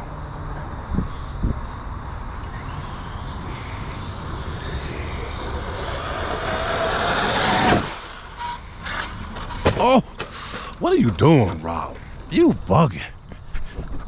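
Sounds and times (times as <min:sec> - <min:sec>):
tyres on dirt: 0:02.2 - 0:14.0
electric motor whining: 0:02.3 - 0:09.7.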